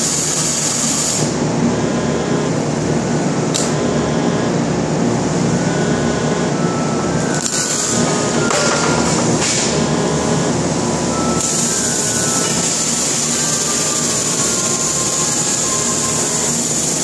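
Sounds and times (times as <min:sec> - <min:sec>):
electric arc welding: 0:00.0 - 0:01.4, 0:07.3 - 0:08.4, 0:11.4 - 0:17.0
busy factory din: 0:00.0 - 0:17.0.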